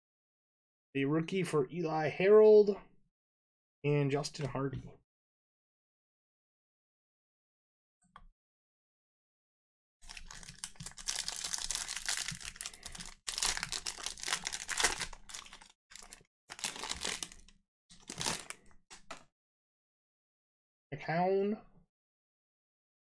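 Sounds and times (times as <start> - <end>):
foil wrapper crinkling and tearing: 10.0 - 19.2.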